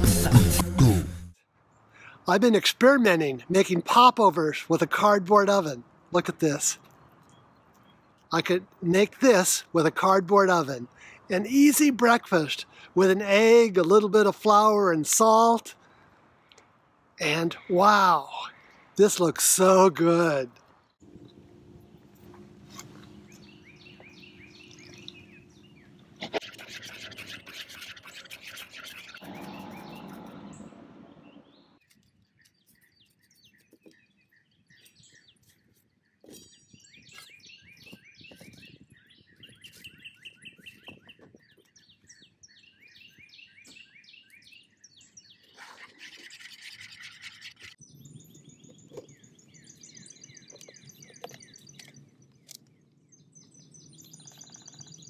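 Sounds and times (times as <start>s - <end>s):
birds chirping and singing: 22.2s - 55.0s.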